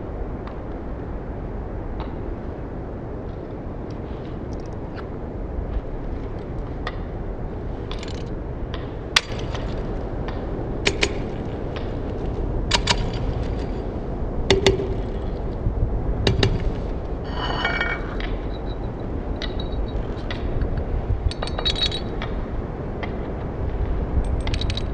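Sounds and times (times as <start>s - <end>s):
low background noise: 0.0s - 24.9s
ceramic pot clinking: 17.3s - 18.8s.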